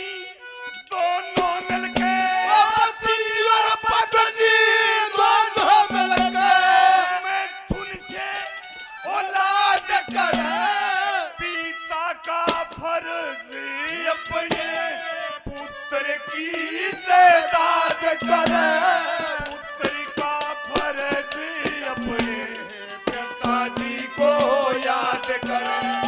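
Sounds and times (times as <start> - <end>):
man singing in belting style: 0.0 - 26.0
held melody tones: 0.6 - 2.8, 5.6 - 7.4, 10.0 - 10.9, 15.5 - 26.0
hand drum strokes: 1.4 - 2.4, 5.6 - 6.7, 10.1 - 10.8, 18.2 - 26.0.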